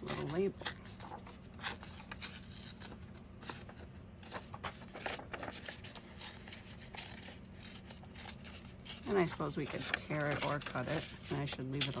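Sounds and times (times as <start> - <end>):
paper rustling: 0.0 - 12.0.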